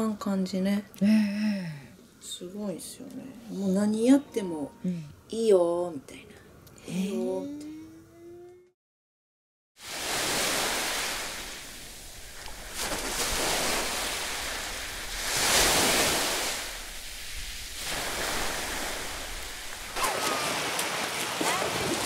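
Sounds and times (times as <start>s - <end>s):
sea waves washing onto beach: 9.8s - 22.0s.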